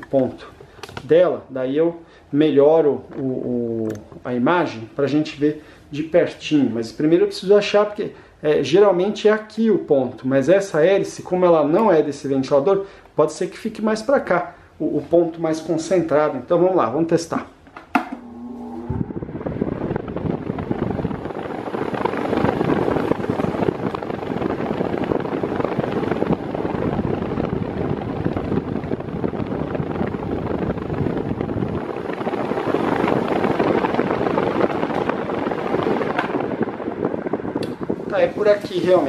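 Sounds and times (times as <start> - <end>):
desk fan rushing air: 10.9 - 39.0.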